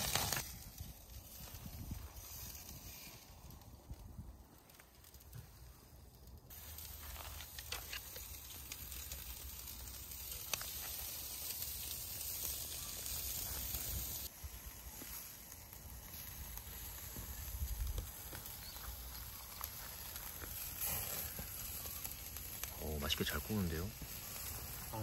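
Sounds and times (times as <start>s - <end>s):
meat sizzling on a grill: 0.0s - 4.0s, 6.2s - 25.0s
small pops from grill: 6.5s - 13.8s.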